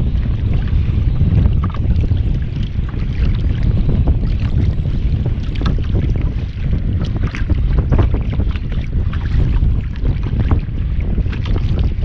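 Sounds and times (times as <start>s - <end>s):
waves lapping against a hull: 0.0s - 12.0s
wind buffeting microphone: 0.0s - 12.0s.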